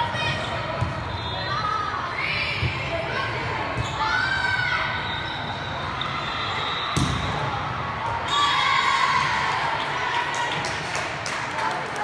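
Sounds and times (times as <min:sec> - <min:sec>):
crowd noise: 0:00.0 - 0:12.0
volleyball smack: 0:07.0 - 0:07.3.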